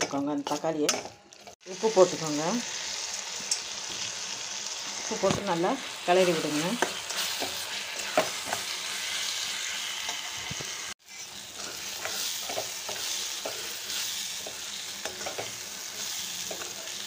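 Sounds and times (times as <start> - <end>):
vegetables sizzling in oil: 0.0 - 17.0
metal spoon scraping pan: 11.0 - 17.0.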